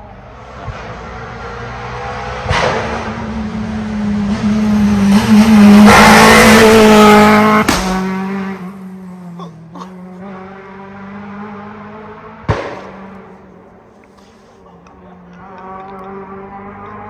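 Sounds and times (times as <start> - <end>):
rally car passing at speed: 0.0 - 14.0, 14.8 - 17.0
sharp bang: 7.5 - 8.3, 12.5 - 13.1.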